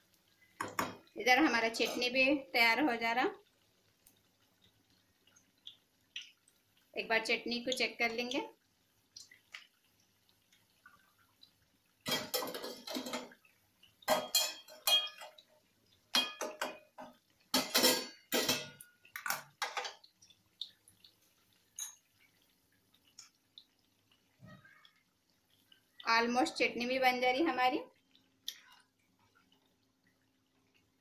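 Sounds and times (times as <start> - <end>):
metal spoon scraping steel pot: 1.8 - 2.2.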